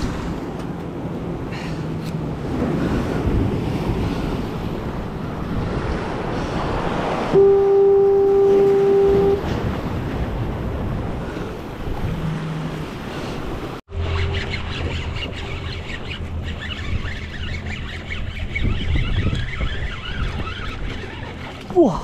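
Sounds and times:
horn sounding steady note: 7.3 - 9.6
wind on microphone: 16.8 - 21.5.

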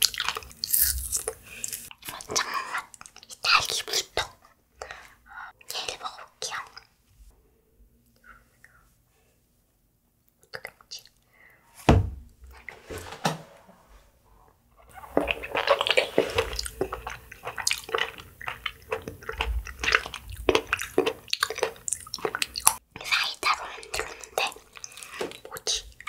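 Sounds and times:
knock: 11.9 - 12.2
wet slurping and squishing: 14.9 - 22.8.

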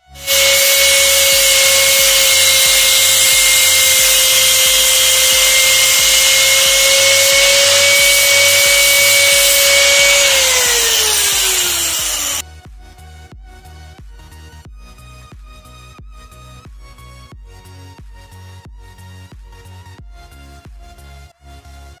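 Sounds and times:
angle grinder grinding wood: 0.0 - 12.4.

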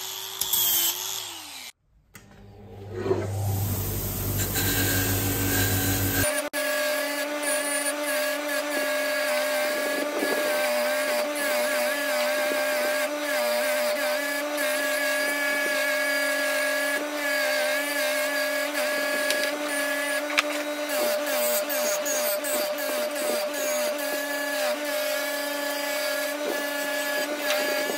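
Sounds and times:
bench grinder humming: 0.0 - 27.9
wire brush scratching metal: 4.3 - 6.3.

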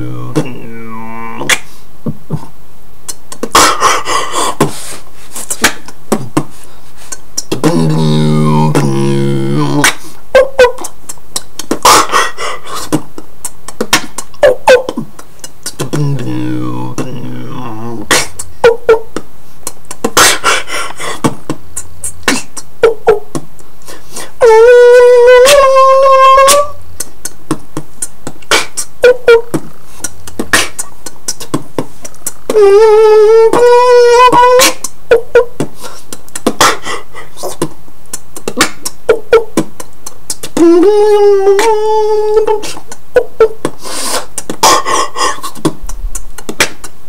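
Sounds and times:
buzzy voiced synth-like note: 0.0 - 1.5, 7.6 - 9.9, 15.8 - 18.1
beatboxing kick and snare: 0.1 - 0.8, 1.4 - 24.4, 25.4 - 25.7, 26.4 - 47.0.

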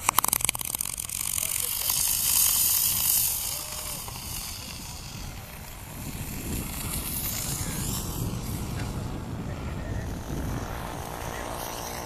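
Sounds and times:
rocket motor hissing: 0.0 - 12.0.

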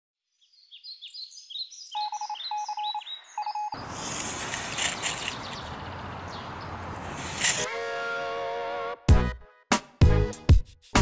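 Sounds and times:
high falling bird-like chirps: 0.4 - 7.7
short electronic beeps: 2.0 - 3.8.

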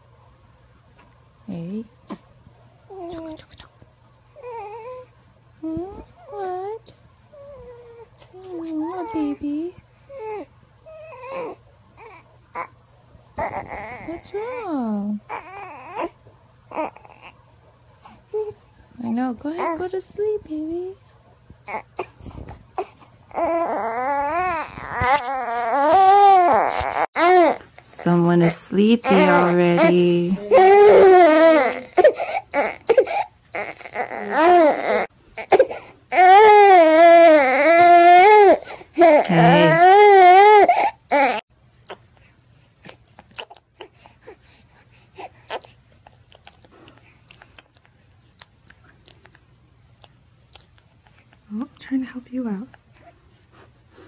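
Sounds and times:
baby crying: 13.4 - 17.4, 22.8 - 27.6, 29.0 - 41.4
baby sucking on a pacifier: 41.8 - 44.2, 45.2 - 51.5.

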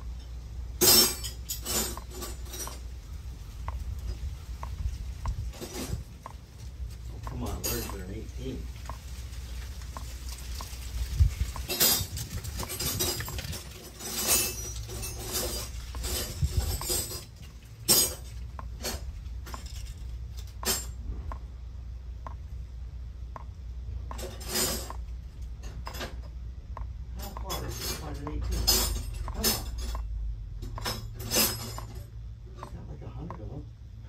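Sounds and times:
low steady hum: 0.0 - 34.0
metal hand tools clinking: 0.2 - 2.9, 7.2 - 8.4, 11.6 - 21.0, 27.2 - 32.8.

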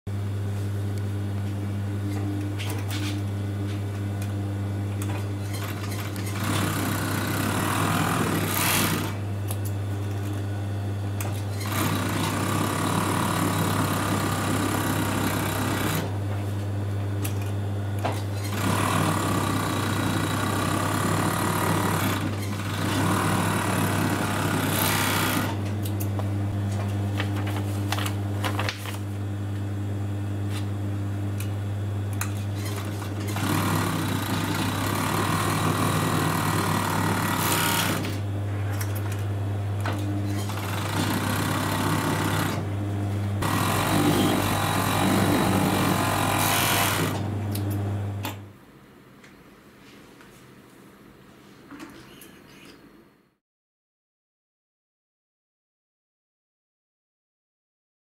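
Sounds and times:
overlock sewing machine sewing: 5.4 - 9.2, 11.4 - 16.2, 18.2 - 25.7, 32.5 - 38.2, 39.9 - 42.7, 43.4 - 48.4.

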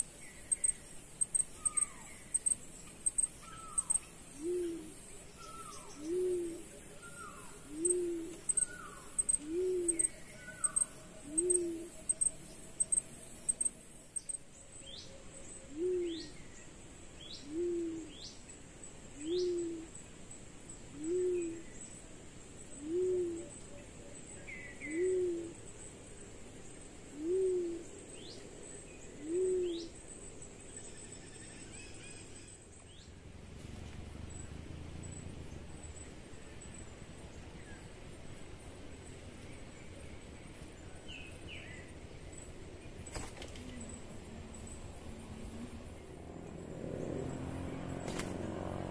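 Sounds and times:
small birds chirping faintly: 0.0 - 48.9
pigeon hooting coo: 3.5 - 12.2, 15.7 - 16.3, 17.4 - 18.2, 19.2 - 19.9, 21.0 - 21.6, 22.8 - 23.6, 24.8 - 25.6, 27.1 - 27.9, 29.2 - 29.9.

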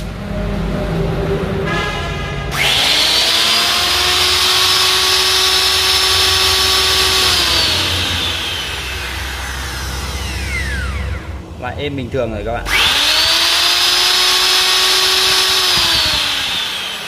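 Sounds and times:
electric router motor whining: 2.5 - 11.6, 12.6 - 17.0.

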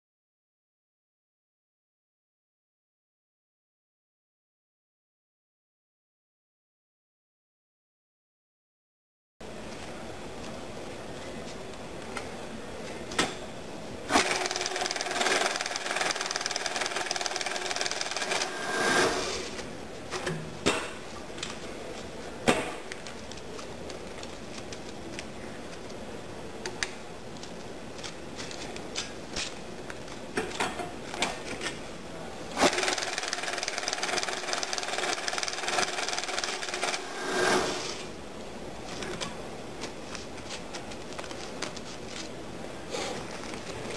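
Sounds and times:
currency counter whirring: 14.1 - 19.6, 32.6 - 38.1
paper rustling: 22.9 - 25.9, 38.8 - 42.4, 43.1 - 43.9.

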